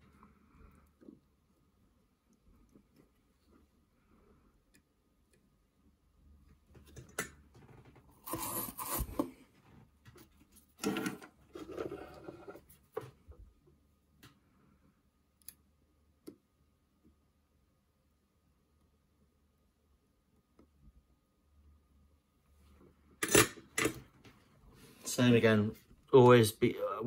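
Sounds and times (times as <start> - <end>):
rustling and scraping: 6.7 - 13.4.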